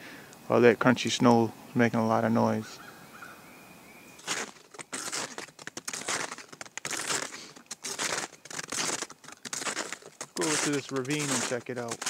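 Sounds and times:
snowshoes crunching snow: 0:04.2 - 0:12.0.

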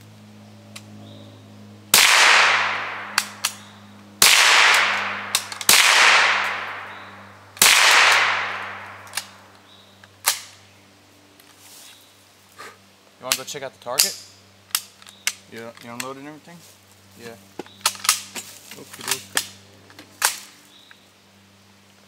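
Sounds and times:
rifle shots echoing: 0:01.9 - 0:09.5.

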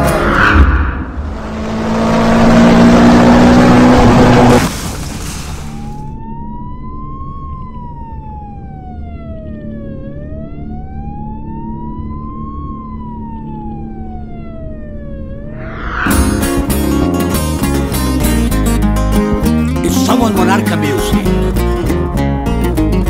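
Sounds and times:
emergency siren wailing: 0:05.7 - 0:16.8.

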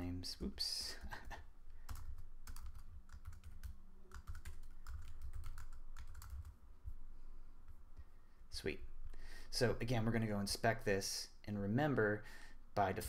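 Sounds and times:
typing on a keyboard: 0:01.9 - 0:06.5.

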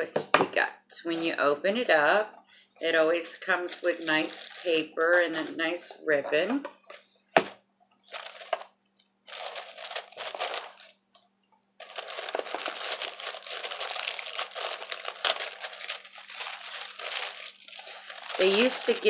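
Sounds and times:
tissue paper rustling: 0:03.6 - 0:05.7, 0:08.0 - 0:08.7, 0:09.3 - 0:11.0, 0:11.8 - 0:19.0.

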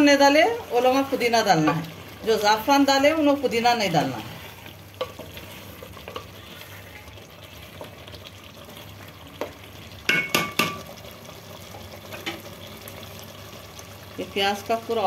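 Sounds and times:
gravy sizzling: 0:00.0 - 0:15.0
spoon stirring in metal pot: 0:04.4 - 0:06.9
spoon knocking on metal pot: 0:10.1 - 0:10.9.

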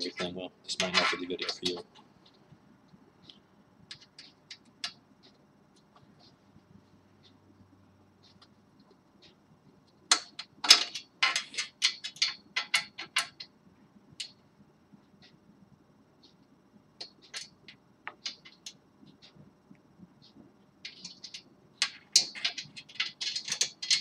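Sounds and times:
small metal hardware clicking: 0:20.9 - 0:24.0.

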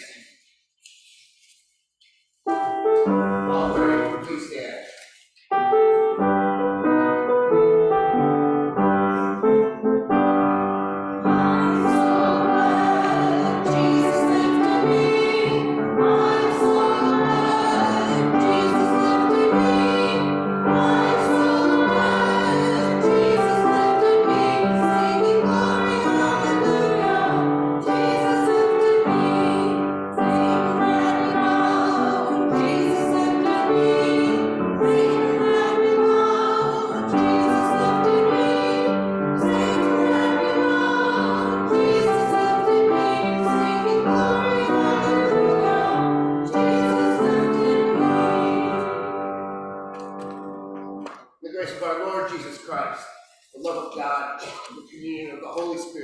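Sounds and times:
grand piano playing: 0:02.4 - 0:04.6, 0:05.5 - 0:52.6
congregation singing a hymn: 0:02.5 - 0:04.3, 0:11.0 - 0:50.4.

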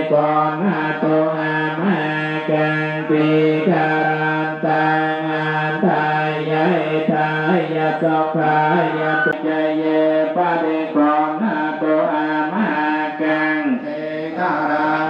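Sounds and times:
voices chanting together: 0:00.0 - 0:15.0
held drone: 0:13.8 - 0:15.0.

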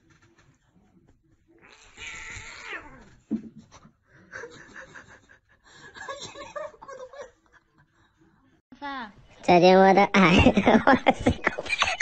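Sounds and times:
cat yowling: 0:01.6 - 0:03.1.

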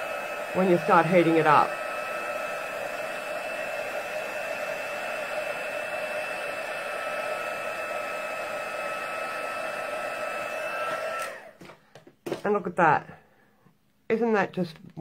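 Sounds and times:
hot-air blower whirring with whine: 0:00.0 - 0:12.1.

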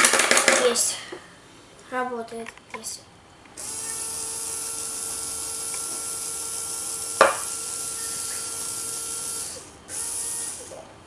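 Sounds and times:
small electric motor whining: 0:03.6 - 0:11.0
sharp knock: 0:07.2 - 0:07.5.

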